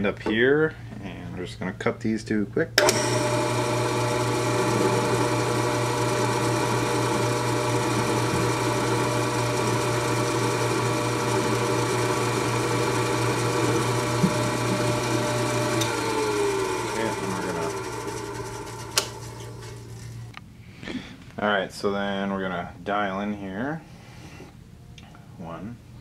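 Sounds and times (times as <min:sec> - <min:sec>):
milling machine whine: 0:02.8 - 0:20.4
motor spinning down: 0:02.8 - 0:20.4.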